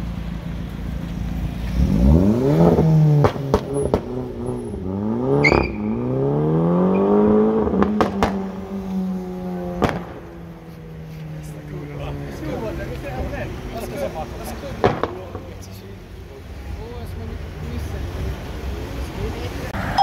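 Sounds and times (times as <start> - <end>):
exhaust cracks: 0.0 - 6.1, 6.8 - 12.0, 14.6 - 15.7
car engine revving: 0.0 - 15.6.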